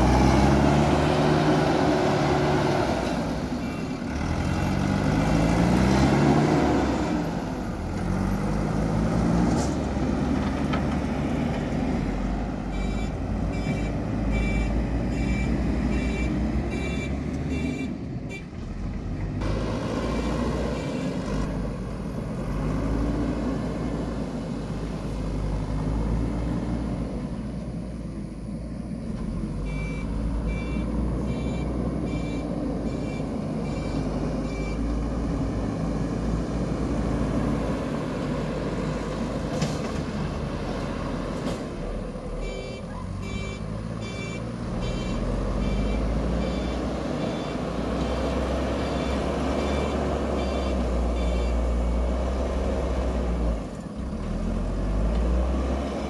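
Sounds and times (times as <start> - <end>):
diesel engine running: 0.0 - 56.0
reversing alarm beeping: 12.7 - 18.0, 29.6 - 35.0, 42.4 - 52.0.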